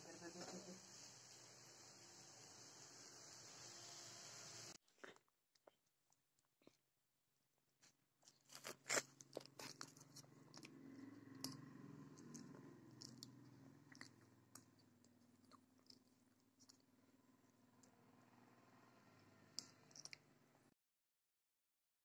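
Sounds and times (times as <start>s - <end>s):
person chewing and crunching: 4.8s - 6.9s, 7.8s - 17.1s, 19.6s - 20.2s.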